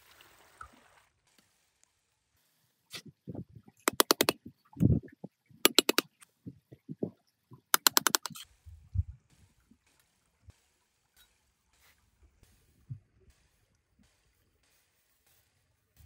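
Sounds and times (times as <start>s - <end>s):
sharp clicks: 3.9s - 4.9s, 5.7s - 6.2s, 7.7s - 8.4s.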